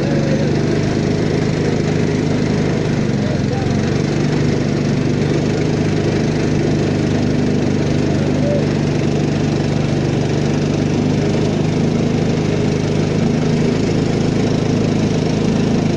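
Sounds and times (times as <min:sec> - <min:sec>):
boat engine running: 0:00.0 - 0:15.9.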